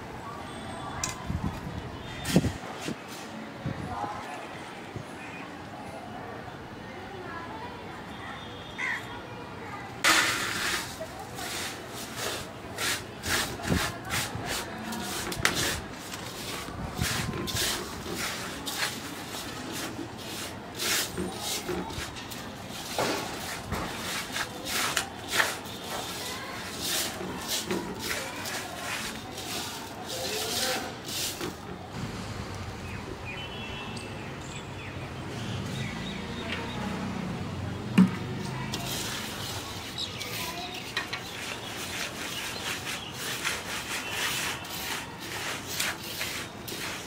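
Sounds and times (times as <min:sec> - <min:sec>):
hands mixing spices in metal bowl: 0:10.1 - 0:31.8, 0:38.4 - 0:47.0.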